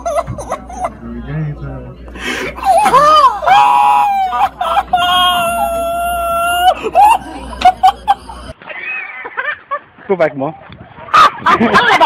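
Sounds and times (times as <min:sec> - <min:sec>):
person screaming: 0:02.6 - 0:07.6.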